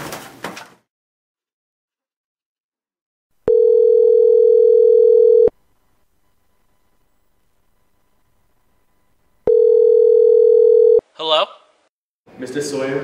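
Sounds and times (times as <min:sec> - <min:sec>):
telephone ringback tone: 0:03.5 - 0:05.6, 0:09.5 - 0:11.0.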